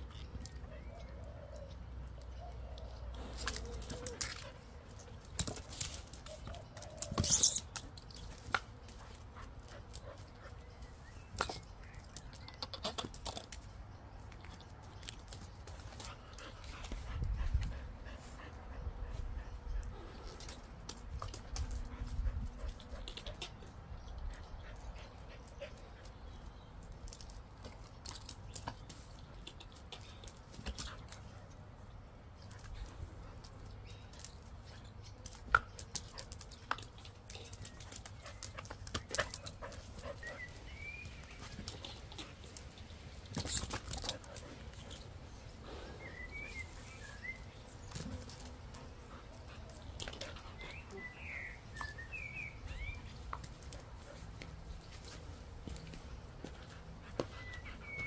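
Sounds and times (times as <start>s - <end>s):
paws scuffing on paving: 52.4s - 58.0s.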